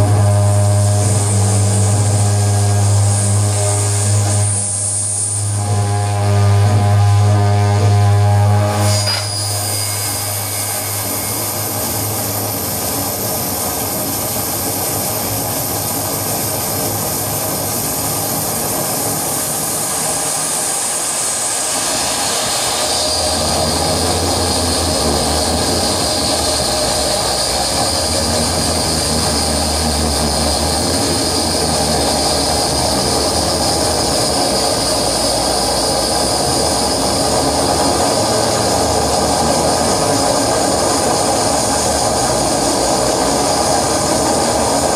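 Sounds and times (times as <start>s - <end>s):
electronic noise drone: 0.0s - 44.9s
strong low hum: 0.0s - 44.9s
high whistle: 8.7s - 12.9s.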